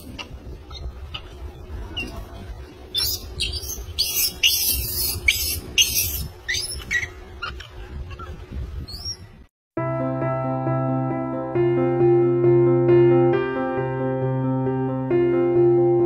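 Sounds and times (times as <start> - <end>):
young monkeys screaming: 2.9 - 9.2.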